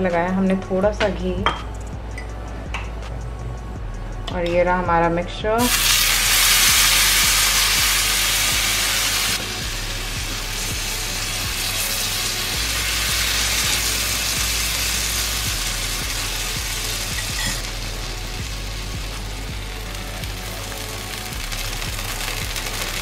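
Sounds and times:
batter sizzling on a griddle: 5.7s - 23.0s.

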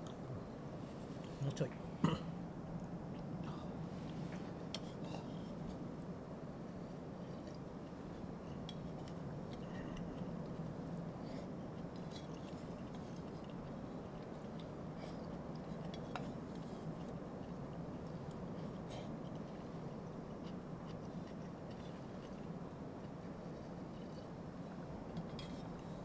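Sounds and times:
low background rumble: 0.0s - 26.0s
chewing: 7.2s - 26.0s.

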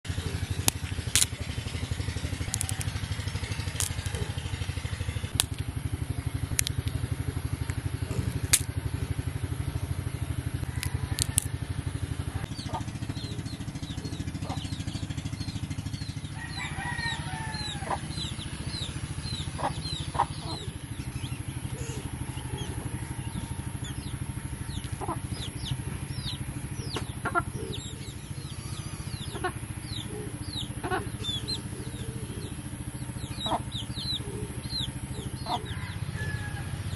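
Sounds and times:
chickens clucking: 0.1s - 36.9s
low hum: 0.1s - 36.9s
sharp clicks: 0.5s - 4.4s, 5.2s - 9.0s, 10.6s - 11.5s
rooster crowing: 10.6s - 12.4s, 16.3s - 18.4s, 22.1s - 23.8s, 35.3s - 36.9s.

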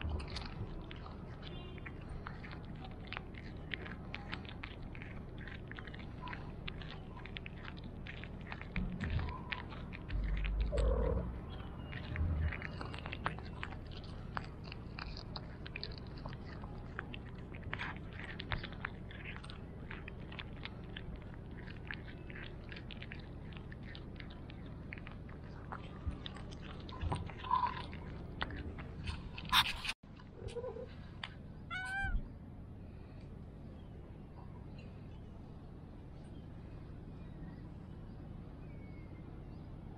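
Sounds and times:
cat chewing meat: 0.0s - 32.1s
cat call rising in pitch: 31.7s - 32.2s.

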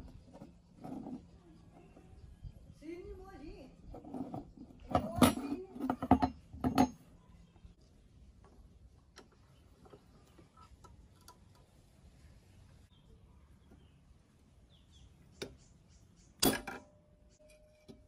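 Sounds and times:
metal tool parts clinking: 4.0s - 7.0s, 16.4s - 18.0s.

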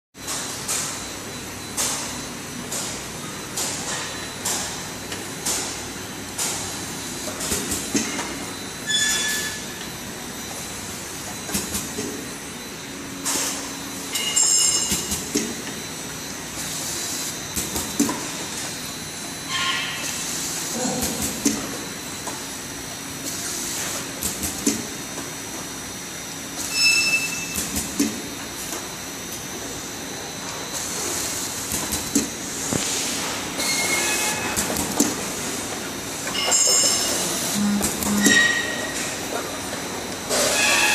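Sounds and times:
labeling machine running: 0.2s - 40.9s.

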